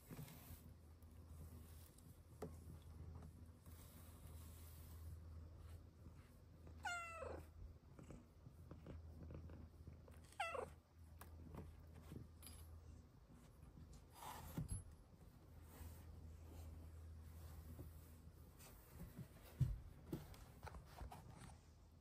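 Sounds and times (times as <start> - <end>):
cat meowing: 6.8 - 7.4, 10.3 - 10.7
cat purring: 7.2 - 10.5.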